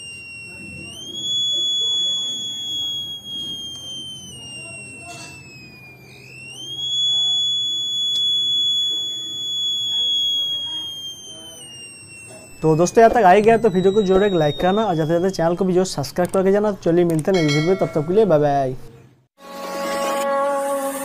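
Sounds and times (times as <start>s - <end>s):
piezo buzzer high beep: 0.0s - 15.7s.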